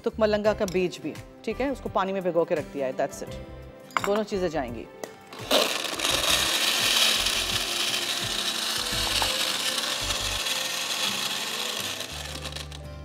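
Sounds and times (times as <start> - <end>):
electric blender churning ice: 5.4 - 13.0.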